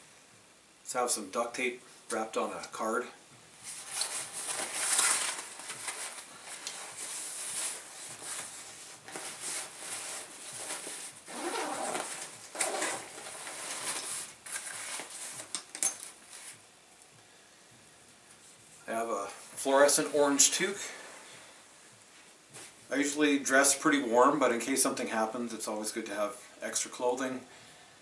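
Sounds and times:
fabric rustling and scraping: 0:03.6 - 0:16.7, 0:19.4 - 0:22.9
zipper being pulled open: 0:10.7 - 0:14.0.

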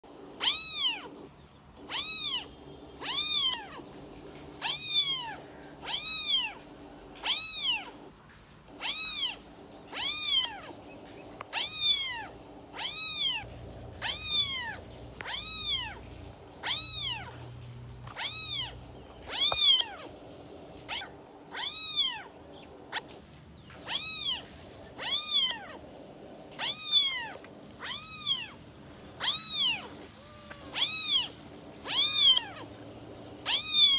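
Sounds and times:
kitten meowing: 0:00.4 - 0:03.9, 0:04.5 - 0:06.6, 0:07.2 - 0:08.0, 0:08.8 - 0:10.8, 0:11.5 - 0:20.1, 0:20.8 - 0:22.3, 0:23.8 - 0:25.8, 0:26.6 - 0:28.6, 0:29.2 - 0:32.8, 0:33.4 - 0:33.9.

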